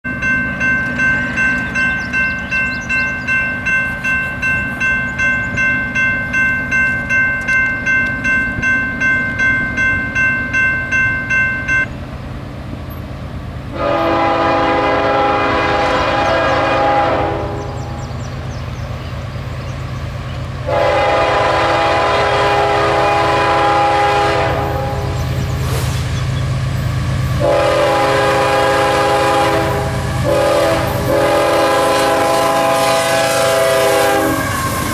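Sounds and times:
crossing bell ringing: 0:00.0 - 0:12.0
low rumble of locomotive engines: 0:00.0 - 0:34.9
locomotive air horn blasts: 0:13.7 - 0:18.0, 0:20.6 - 0:25.3, 0:27.3 - 0:34.9.

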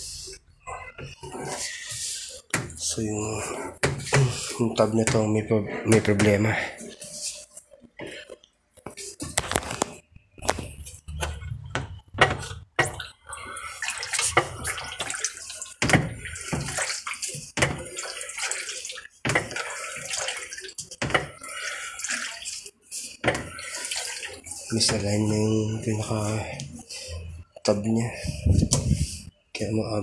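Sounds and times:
plastic scraping and rubbing: 0:07.0 - 0:12.8.

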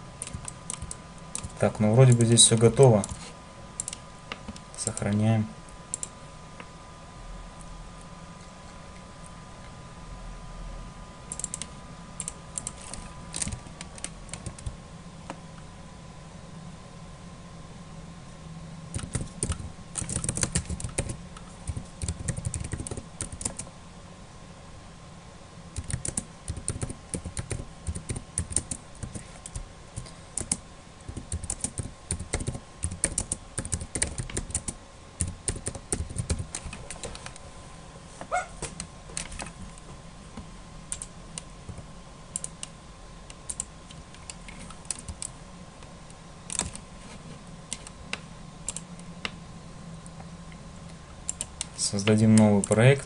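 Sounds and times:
faint steady hum: 0:00.0 - 0:53.0
typing on computer keyboard: 0:00.2 - 0:02.3, 0:03.8 - 0:04.0, 0:11.3 - 0:14.7, 0:18.9 - 0:23.7, 0:25.8 - 0:36.8, 0:44.6 - 0:45.3, 0:46.5 - 0:46.8, 0:51.3 - 0:51.5.

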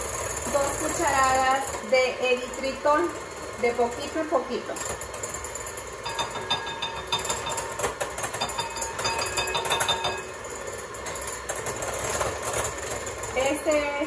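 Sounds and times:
electric hand mixer running: 0:00.0 - 0:14.0
beaters clattering against glass bowl: 0:03.6 - 0:14.0.

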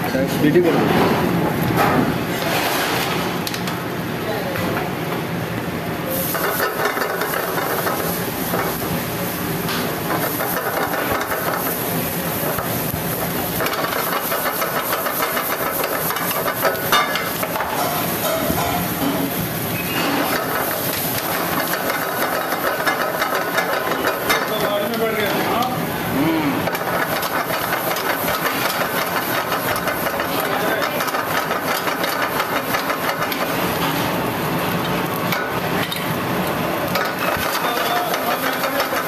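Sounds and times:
onions sizzling in hot oil: 0:06.1 - 0:39.0.

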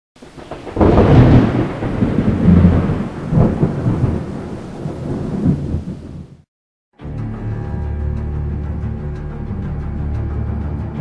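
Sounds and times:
thunder rumbling: 0:00.2 - 0:06.5.

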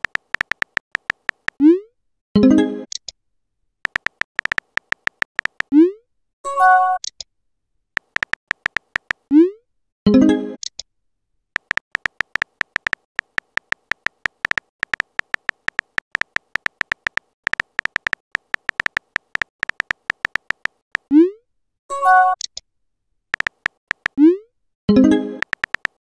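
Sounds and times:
electronic keyboard clicks with beeps: 0:00.0 - 0:01.6, 0:03.9 - 0:05.7, 0:08.0 - 0:09.2, 0:11.6 - 0:21.2, 0:23.4 - 0:24.3, 0:24.9 - 0:26.0.

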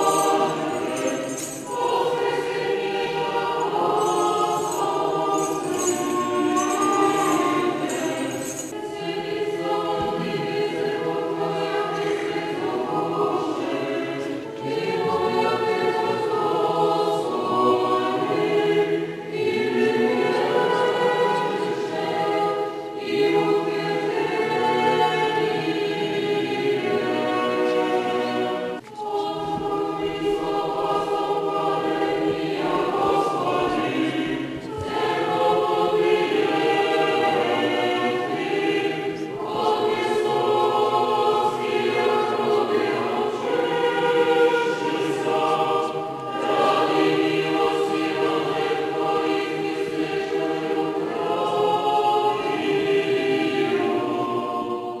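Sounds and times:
choir singing chant a cappella: 0:00.0 - 0:55.0.

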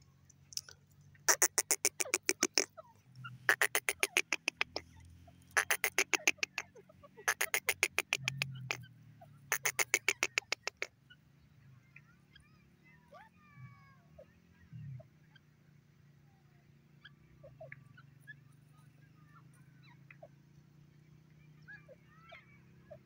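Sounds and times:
bird calling sharp notes: 0:01.2 - 0:08.9, 0:09.5 - 0:10.9.

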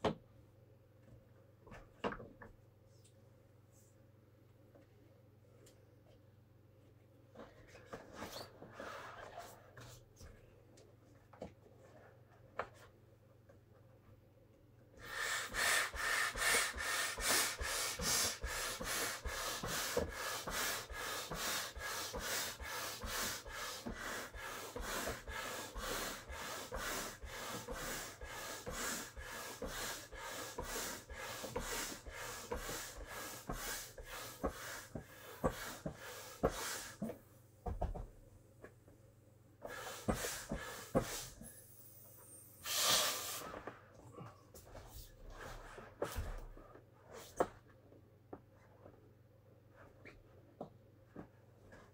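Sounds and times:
person blowing into valve: 0:15.0 - 0:37.0, 0:42.6 - 0:43.6.

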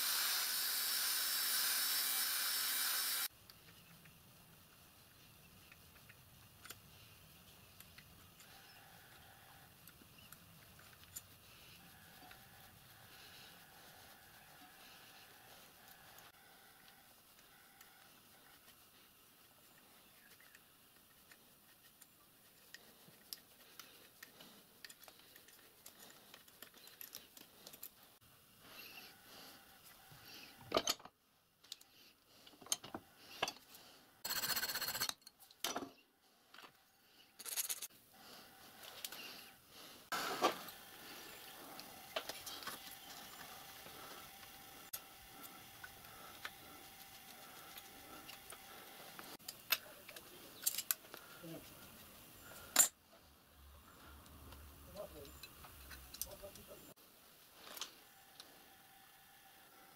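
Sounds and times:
small metal parts clinking: 0:37.4 - 0:37.9, 0:49.5 - 0:51.0.

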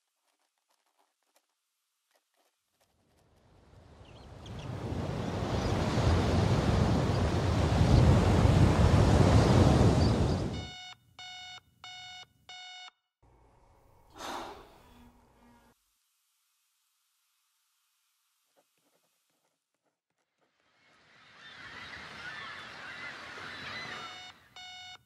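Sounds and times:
digital alarm clock beeping: 0:10.5 - 0:13.0, 0:24.0 - 0:25.0
short breath: 0:14.1 - 0:15.0.

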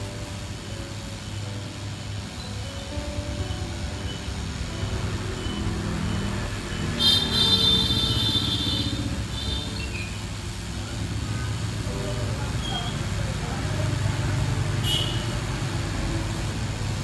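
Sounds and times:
motorbike traffic rumble: 0:00.0 - 0:17.0
shrill vehicle horn: 0:06.8 - 0:09.8.

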